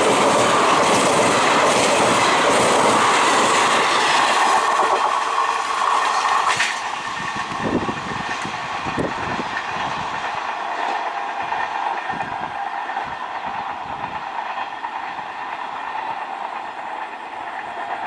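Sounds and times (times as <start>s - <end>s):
wheels clattering over rail joints: 0.0s - 12.6s
train passing at high speed: 0.0s - 18.0s.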